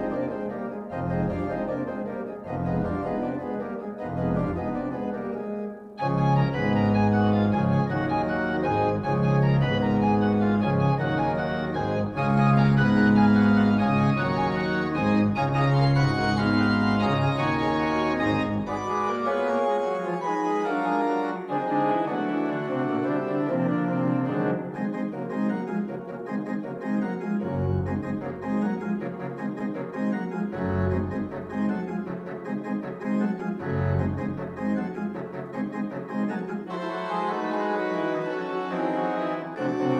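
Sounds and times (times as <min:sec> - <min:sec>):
church organ playing full chords: 0:00.0 - 0:39.9
deep organ pedal bass: 0:00.9 - 0:01.9, 0:02.5 - 0:05.2, 0:06.0 - 0:20.4, 0:27.4 - 0:28.8, 0:30.6 - 0:31.9, 0:33.6 - 0:34.9.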